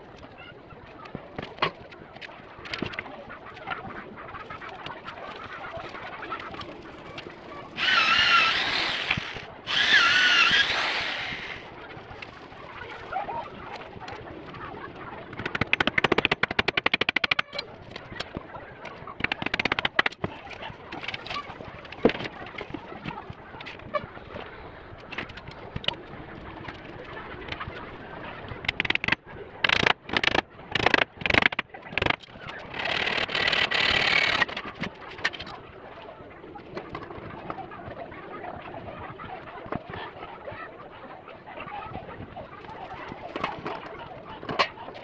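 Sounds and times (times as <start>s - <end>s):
birds calling: 0.0s - 45.0s
rapid rattling clicks: 15.3s - 18.3s.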